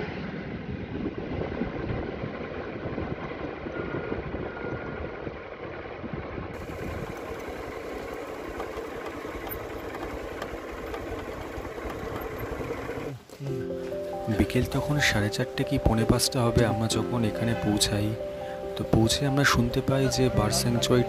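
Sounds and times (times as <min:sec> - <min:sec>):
wind and road noise: 0:00.0 - 0:21.0
motorcycle engine running: 0:06.6 - 0:13.3.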